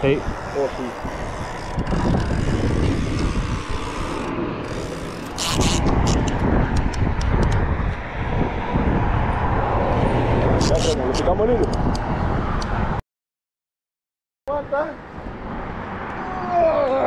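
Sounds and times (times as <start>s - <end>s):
traffic noise: 0.0s - 13.0s, 14.5s - 17.0s
wind buffeting microphone: 0.0s - 13.0s.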